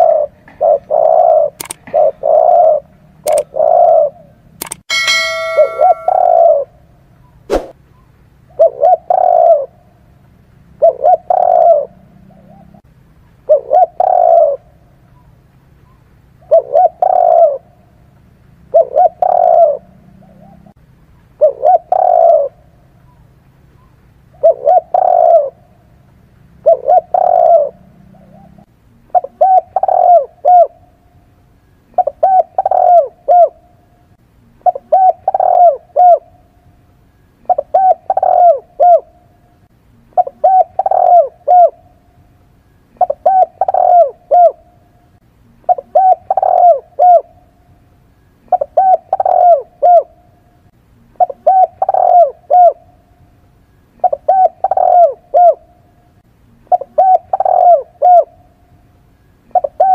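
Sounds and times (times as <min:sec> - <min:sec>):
dove cooing: 0:00.0 - 0:04.4, 0:08.5 - 0:09.8, 0:10.8 - 0:12.8, 0:13.5 - 0:14.8, 0:16.4 - 0:17.7, 0:18.7 - 0:20.7, 0:21.4 - 0:22.7, 0:24.3 - 0:25.6, 0:26.6 - 0:30.8, 0:31.9 - 0:33.6, 0:34.6 - 0:36.3, 0:37.5 - 0:39.3, 0:40.2 - 0:41.9, 0:43.0 - 0:44.7, 0:45.7 - 0:47.5, 0:48.5 - 0:50.2, 0:51.2 - 0:52.9, 0:54.0 - 0:55.9, 0:56.7 - 0:58.4, 0:59.5 - 0:59.9.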